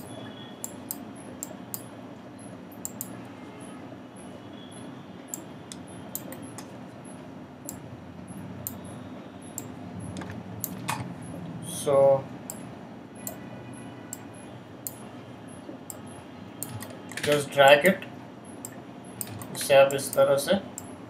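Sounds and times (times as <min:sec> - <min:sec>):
steady low background hum: 0:00.0 - 0:21.0
computer mouse clicks: 0:02.8 - 0:03.1, 0:05.3 - 0:06.7.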